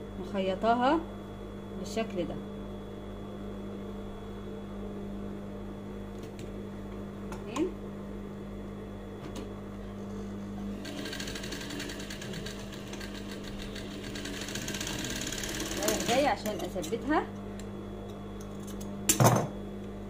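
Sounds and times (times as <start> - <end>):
sewing machine hum and stitching: 10.6 - 16.9.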